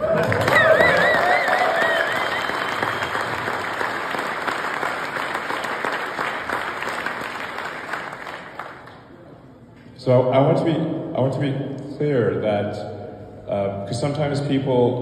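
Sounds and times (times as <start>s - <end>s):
crowd applauding: 0.0s - 9.1s.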